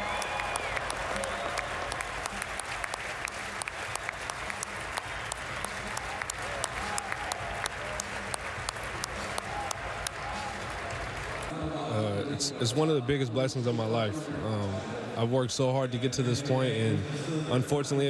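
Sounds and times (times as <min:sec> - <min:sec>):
sharp individual claps: 0:00.0 - 0:11.5
crowd applauding: 0:00.0 - 0:11.6.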